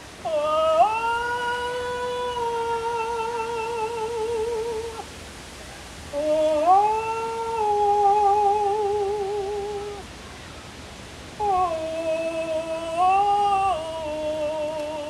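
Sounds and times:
woman singing wordless held notes: 0.0s - 5.2s, 6.1s - 10.1s, 11.3s - 15.0s.

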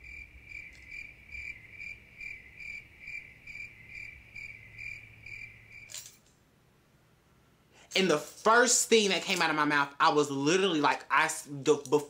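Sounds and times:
crickets chirping: 0.0s - 6.0s.

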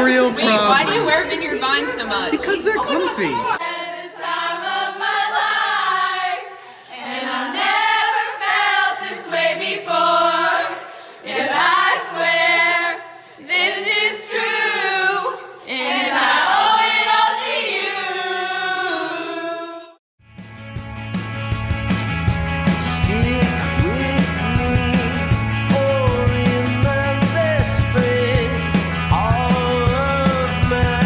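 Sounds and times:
group singing in unison: 2.9s - 20.0s.

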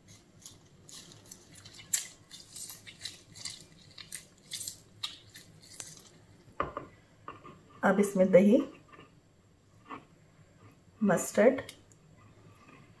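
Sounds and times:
plastic glove crinkling: 0.0s - 6.5s.

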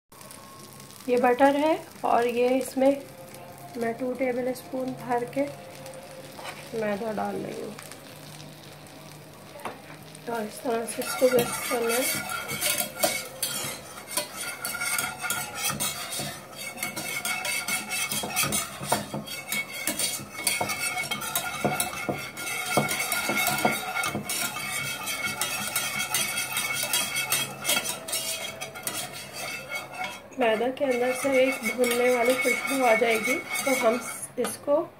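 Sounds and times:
whisk scraping a metal pan: 5.0s - 7.4s, 10.3s - 34.7s.

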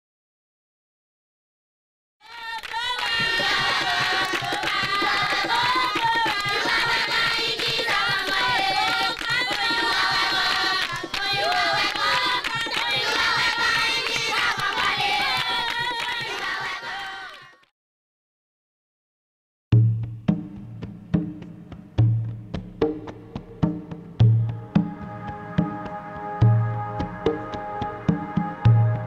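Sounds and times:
voices singing together: 2.2s - 17.6s
quick percussion: 2.4s - 17.2s, 19.8s - 29.0s.

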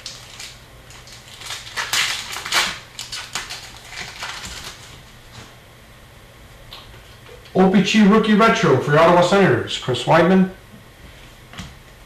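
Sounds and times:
cards and foil packs crinkling: 0.0s - 5.1s.

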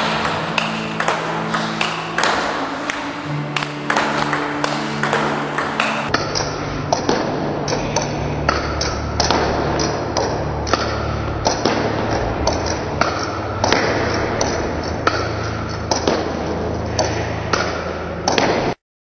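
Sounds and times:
table tennis ball clicks: 0.0s - 6.1s.

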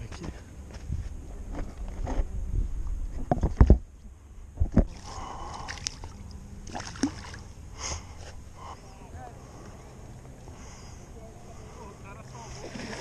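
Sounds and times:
water sloshing and splashing: 4.8s - 7.6s, 12.4s - 13.0s.

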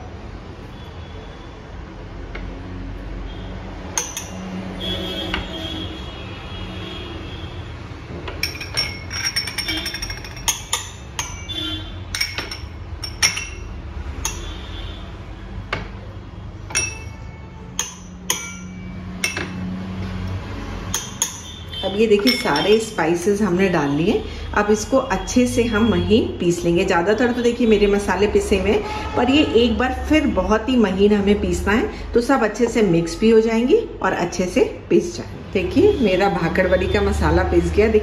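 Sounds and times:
glass bowls clinking on steel jar: 4.0s - 4.6s, 8.4s - 14.6s, 16.7s - 19.7s, 20.9s - 23.2s.

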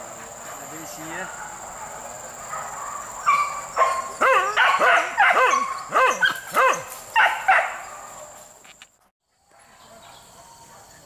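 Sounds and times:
dog barking and yelping: 1.3s - 8.3s.

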